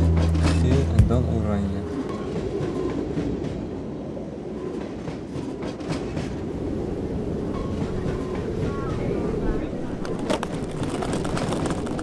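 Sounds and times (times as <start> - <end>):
train rumbling on tracks: 0.0 - 12.0
wheels clacking over rails: 9.8 - 12.0.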